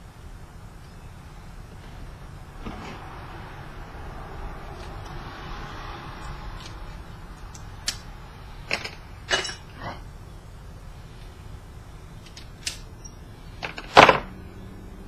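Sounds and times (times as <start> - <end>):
steady low hum: 0.0 - 15.0
metal tools clicking and clinking: 8.7 - 10.0.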